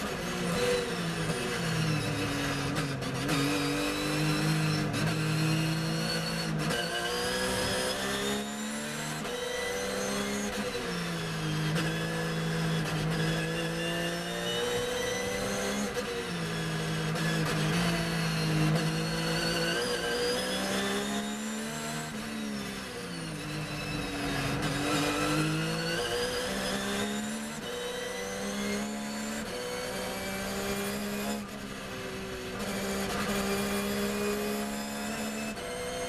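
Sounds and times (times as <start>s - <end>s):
race car engine at speed: 0.0s - 36.0s.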